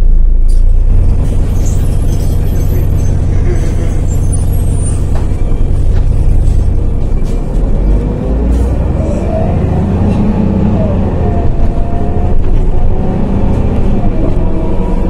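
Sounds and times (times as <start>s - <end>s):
bus diesel engine idling: 0.0s - 15.0s.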